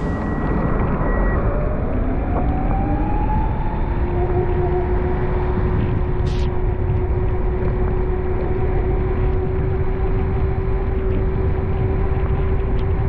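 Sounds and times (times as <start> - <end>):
steady hum: 0.0 - 1.6
car road and engine rumble: 0.0 - 13.0.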